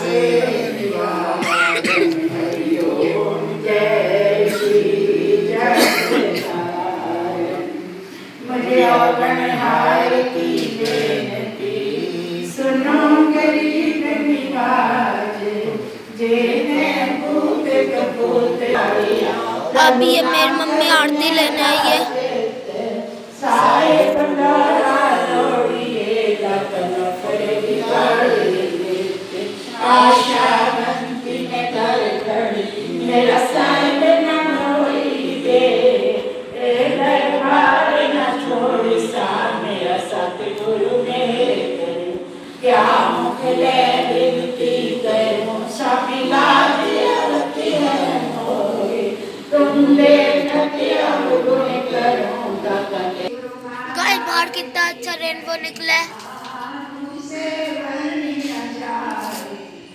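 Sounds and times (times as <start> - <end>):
voices chanting a hymn: 0.0 - 59.9.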